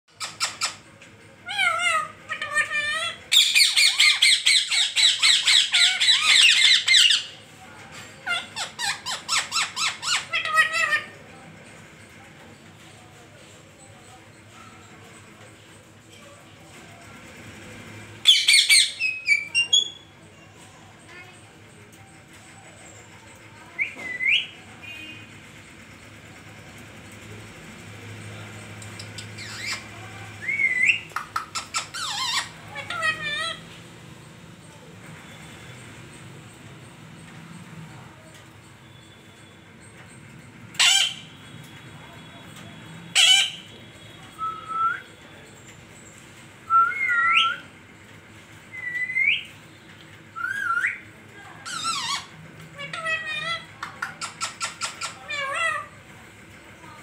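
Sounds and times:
parakeet squawk: 0:01.4 - 0:07.3, 0:08.2 - 0:11.2, 0:18.2 - 0:20.0, 0:29.4 - 0:33.6, 0:40.8 - 0:41.3, 0:43.1 - 0:43.7, 0:51.7 - 0:56.0
parakeet whistled calls: 0:18.2 - 0:20.0, 0:29.4 - 0:33.6, 0:43.1 - 0:43.7, 0:46.6 - 0:47.7, 0:48.7 - 0:49.5, 0:50.3 - 0:51.0
parakeet whistling: 0:48.7 - 0:49.5, 0:50.4 - 0:51.0.

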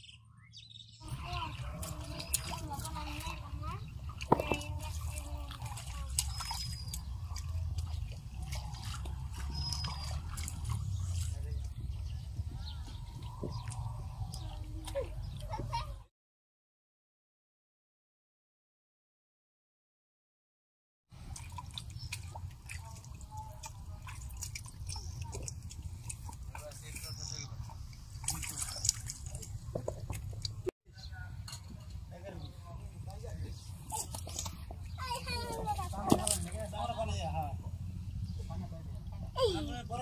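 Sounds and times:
feet wading through muddy water: 0:01.0 - 0:16.0, 0:21.2 - 0:30.7, 0:33.0 - 0:38.3.

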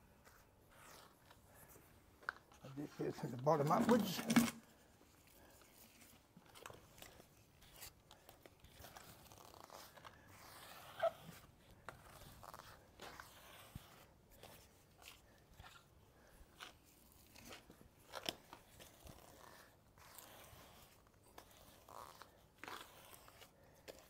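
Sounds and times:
grout float scraping tiles: 0:02.6 - 0:04.7, 0:08.6 - 0:24.0.

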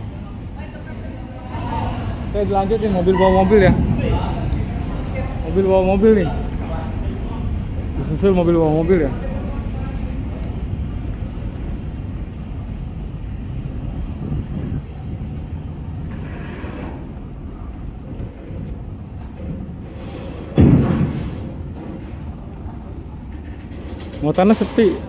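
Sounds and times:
heavy diesel truck engines rumbling: 0:00.0 - 0:25.0
loud thud: 0:03.6 - 0:04.4, 0:20.5 - 0:22.1.

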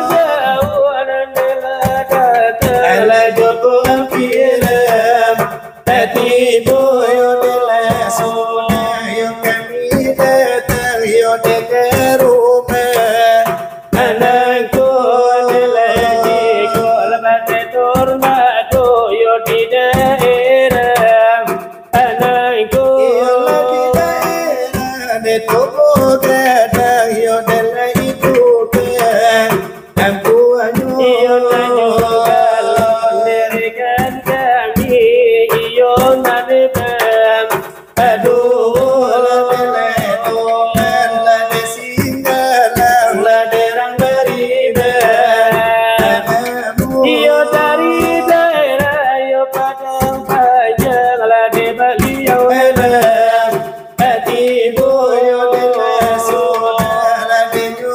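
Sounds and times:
hands beating brass trays: 0:00.0 - 0:49.0, 0:49.6 - 0:57.9
men singing a devotional chant: 0:00.0 - 0:57.9.

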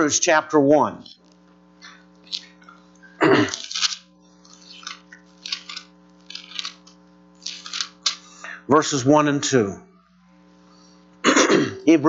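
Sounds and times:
low electrical hum: 0:00.0 - 0:12.0
paper pages rustling: 0:03.5 - 0:08.3.

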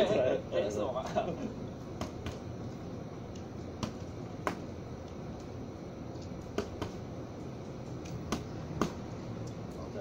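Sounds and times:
boxing glove punches smacking: 0:02.0 - 0:02.4, 0:03.8 - 0:04.7, 0:06.5 - 0:07.0, 0:08.3 - 0:09.0.

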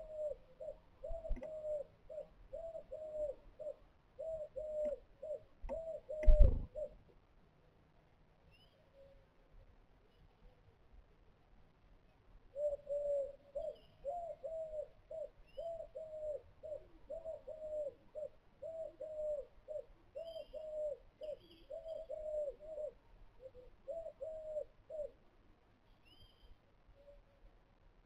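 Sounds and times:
pigeon cooing: 0:00.0 - 0:07.0, 0:12.5 - 0:25.2
small bird chirping: 0:25.9 - 0:27.2.

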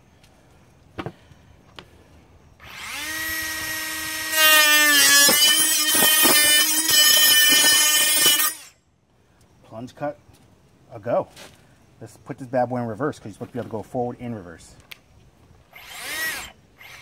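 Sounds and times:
saw blade cutting wood: 0:02.6 - 0:08.7
saw motor whine: 0:02.6 - 0:08.8, 0:15.7 - 0:17.0.

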